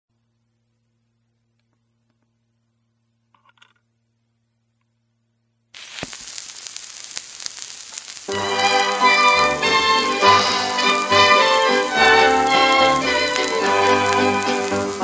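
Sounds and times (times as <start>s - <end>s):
faint steady hum: 0.1s - 15.0s
record surface hiss and crackle: 0.1s - 15.0s
record clicks: 5.8s - 8.4s, 12.0s - 15.0s
theatre orchestra playing: 8.5s - 15.0s.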